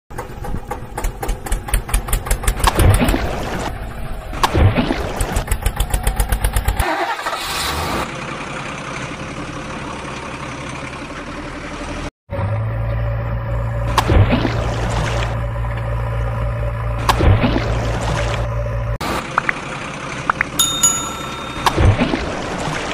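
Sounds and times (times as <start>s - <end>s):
engine cranking and chugging: 0.1s - 3.1s, 5.2s - 7.6s.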